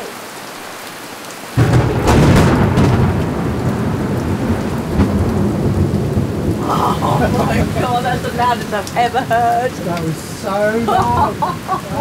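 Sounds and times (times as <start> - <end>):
rain falling: 0.0 - 12.0
thunder crash and rumble: 1.6 - 8.7.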